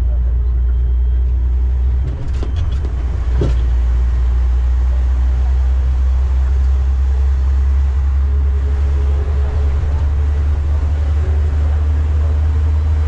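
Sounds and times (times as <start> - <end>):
road train rumbling: 0.0 - 13.0.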